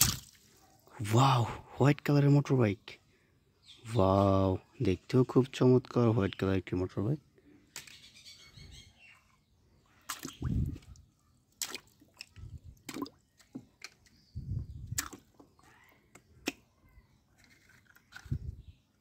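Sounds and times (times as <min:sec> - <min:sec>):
water splashing in basin: 0:00.0 - 0:00.5, 0:10.0 - 0:13.6.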